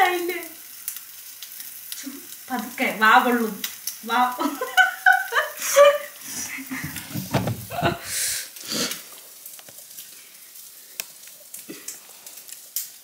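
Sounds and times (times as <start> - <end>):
bread sizzling in a pan: 0.0 - 7.1, 7.7 - 13.0.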